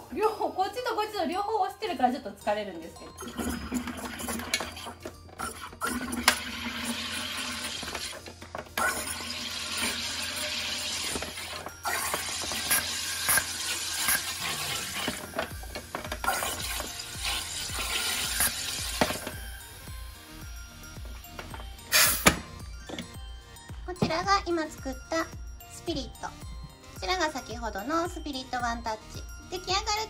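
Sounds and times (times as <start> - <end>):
gas hissing and bubbling into water: 8.8 - 15.2, 16.2 - 19.0.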